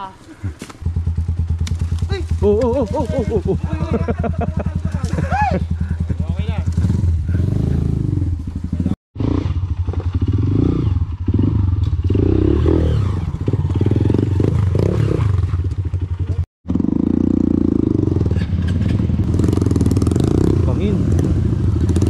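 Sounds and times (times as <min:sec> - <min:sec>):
motorcycle engine revving: 0:00.8 - 0:22.0.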